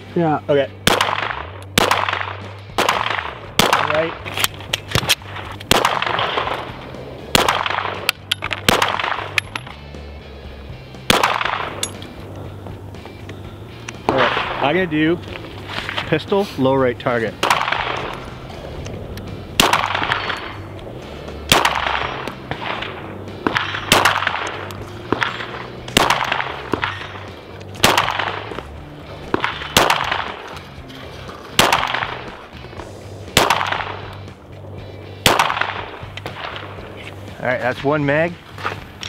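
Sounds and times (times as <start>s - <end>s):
pistol shots with echo: 0.8s - 4.2s, 4.9s - 6.7s, 7.3s - 9.6s, 11.1s - 12.0s, 14.1s - 14.8s, 17.4s - 18.2s, 19.6s - 20.6s, 21.4s - 28.6s, 29.3s - 30.5s, 31.6s - 32.4s, 33.3s - 34.1s, 35.2s - 36.8s.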